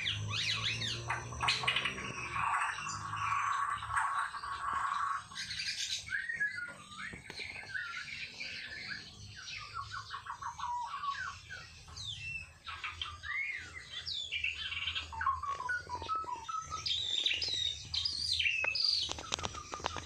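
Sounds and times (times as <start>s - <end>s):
bird singing varied song: 0.0s - 20.0s.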